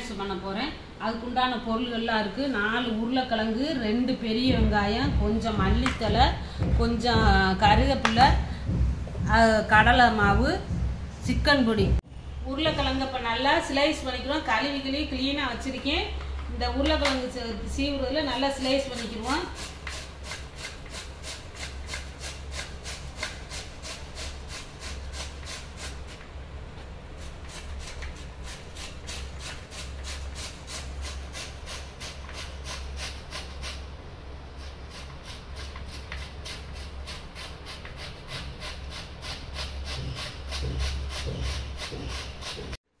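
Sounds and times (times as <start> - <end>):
potato scraping on grater blade: 18.2 - 26.2, 27.2 - 33.8, 34.6 - 42.8.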